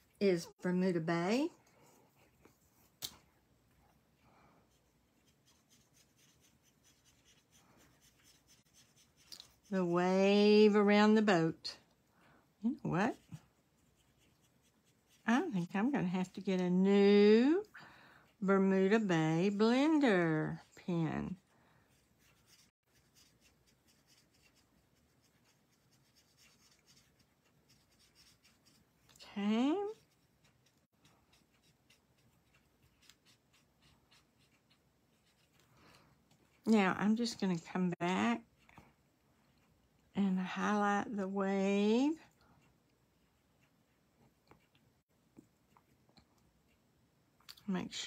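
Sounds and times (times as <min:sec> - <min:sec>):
marker scratching on cardstock: 0:04.7 - 0:09.8, 0:13.1 - 0:15.5, 0:21.9 - 0:28.9, 0:29.7 - 0:35.6.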